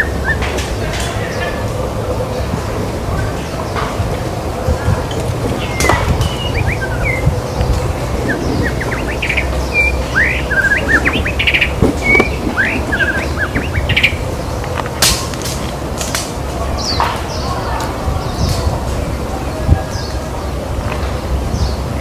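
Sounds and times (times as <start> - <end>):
low background rumble: 0.0 - 22.0
bird singing whistled notes: 5.6 - 14.3.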